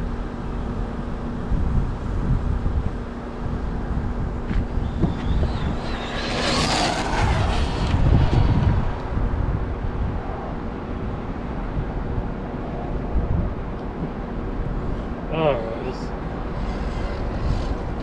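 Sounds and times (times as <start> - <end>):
wind buffeting microphone: 0.0 - 18.0
electric motor whining: 4.7 - 9.3.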